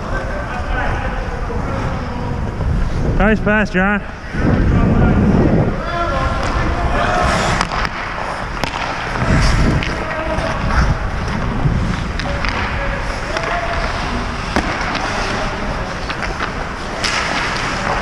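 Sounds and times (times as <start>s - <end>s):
wind on microphone: 0.0s - 7.7s, 8.3s - 14.6s
skates scraping ice: 5.8s - 18.0s
hockey sticks and puck clacking: 6.1s - 18.0s.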